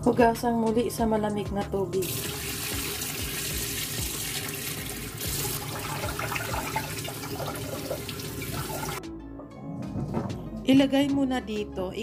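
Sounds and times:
faucet water running into pot: 2.0s - 9.0s.

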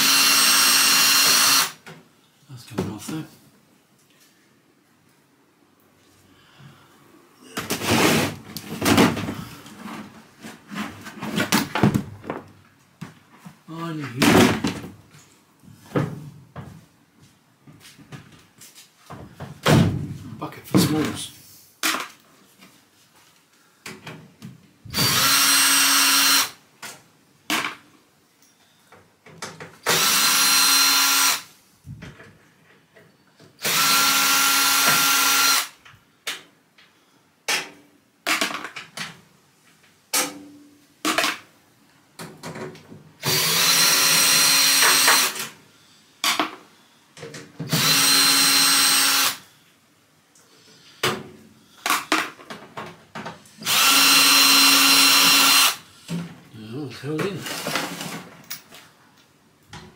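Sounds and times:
cordless drill motor whine: 0.0s - 1.8s, 25.0s - 26.6s, 29.9s - 31.4s, 33.6s - 35.7s, 43.2s - 45.4s, 47.7s - 49.4s, 53.6s - 55.8s.

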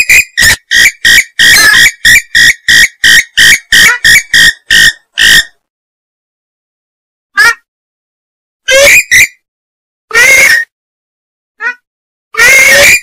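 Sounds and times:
bird harsh calls: 0.0s - 5.6s, 8.7s - 9.4s, 10.1s - 10.7s, 12.4s - 13.0s.

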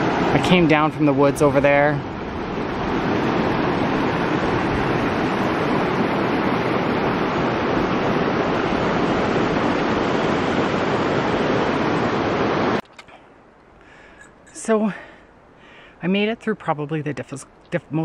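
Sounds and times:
river rushing over rocks: 0.0s - 12.8s.

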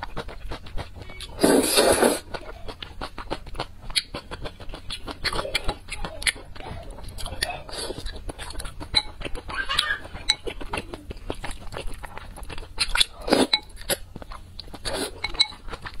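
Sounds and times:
wet chewing and slurping: 0.0s - 16.0s
chopsticks clinking on bowl: 15.2s - 15.7s.

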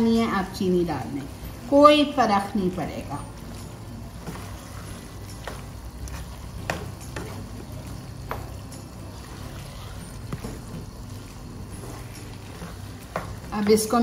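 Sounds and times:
spatula scraping in frying pan: 3.2s - 14.0s.

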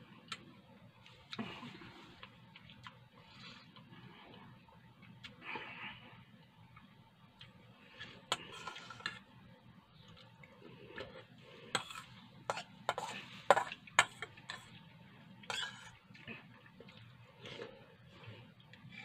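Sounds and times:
metal spoon scraping a steel bowl: 8.0s - 9.2s, 11.7s - 14.7s, 15.5s - 16.0s.

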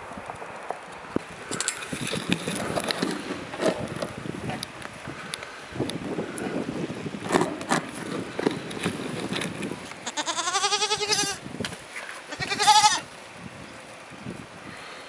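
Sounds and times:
goat bleating: 10.0s - 11.4s, 12.3s - 13.1s.

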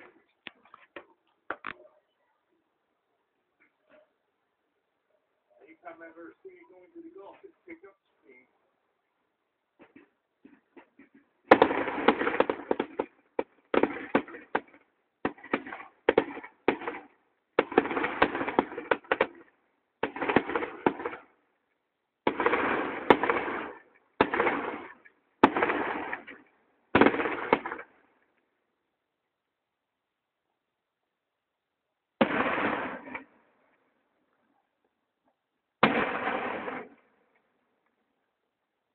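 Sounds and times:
fireworks crackling: 11.4s - 19.4s, 20.0s - 21.3s, 22.2s - 27.9s, 32.2s - 33.3s, 35.8s - 37.0s.

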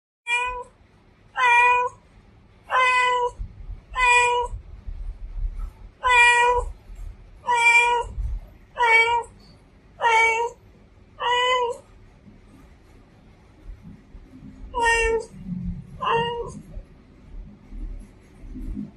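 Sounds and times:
cat meowing: 0.3s - 0.7s, 1.4s - 2.0s, 2.7s - 3.4s, 4.0s - 4.6s, 6.0s - 6.8s, 7.4s - 8.2s, 8.8s - 9.4s, 10.0s - 10.6s, 11.2s - 11.8s, 14.7s - 16.7s.

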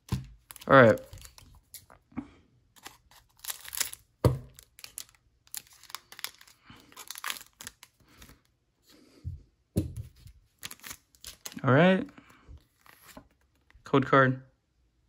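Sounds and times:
foil wrapper crinkling and tearing: 0.0s - 1.7s, 2.8s - 8.4s, 10.6s - 11.7s.

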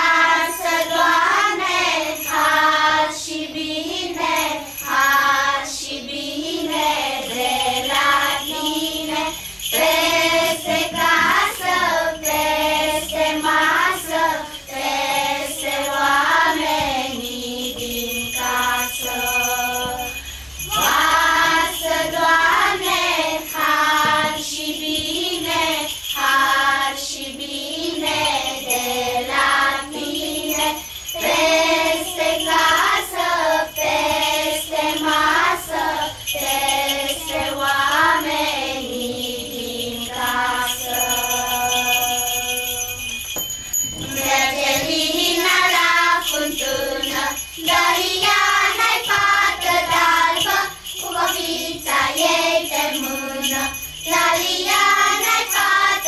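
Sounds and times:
children's choir singing carol: 0.0s - 56.0s
small bells jingling: 0.0s - 56.0s.

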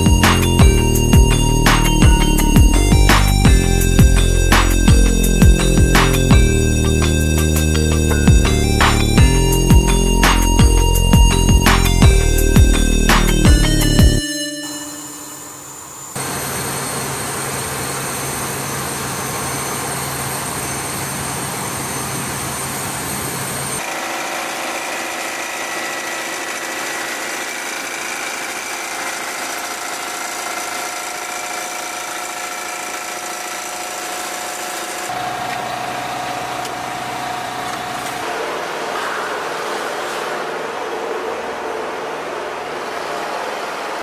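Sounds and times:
high-pitched whines: 0.0s - 44.0s
turbine machinery roar: 0.0s - 44.0s.

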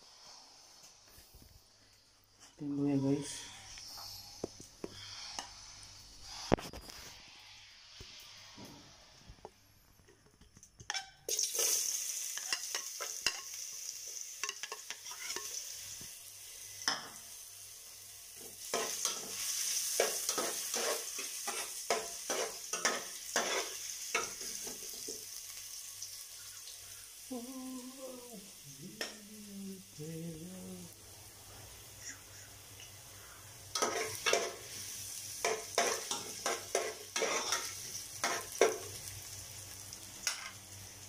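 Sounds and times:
ginger sizzling in hot oil: 10.8s - 27.4s, 33.6s - 41.0s.

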